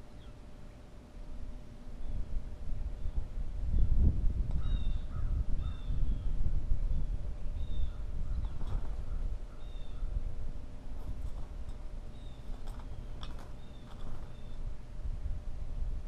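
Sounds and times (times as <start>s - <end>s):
blue jay calling: 0.0s - 0.9s, 2.9s - 6.4s, 7.4s - 10.3s, 11.9s - 14.9s.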